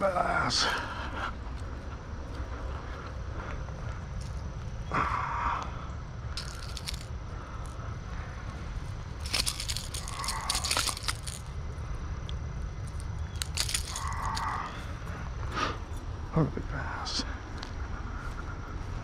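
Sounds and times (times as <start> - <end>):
crackling and rustling: 5.6 - 15.4.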